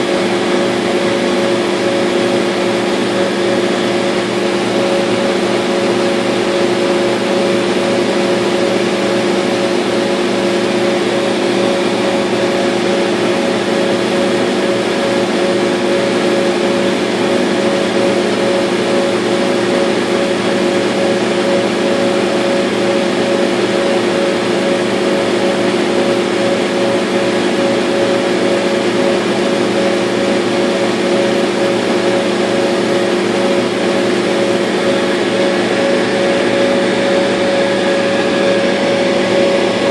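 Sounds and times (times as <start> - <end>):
laser cutter humming: 34.0 - 39.9.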